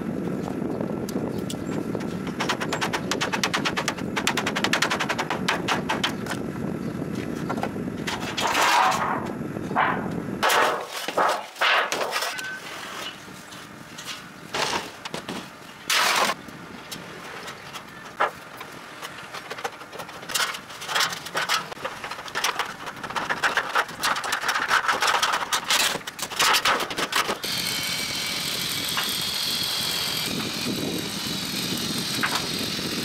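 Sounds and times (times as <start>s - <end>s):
sheet metal scraping while bent: 8.1s - 13.2s.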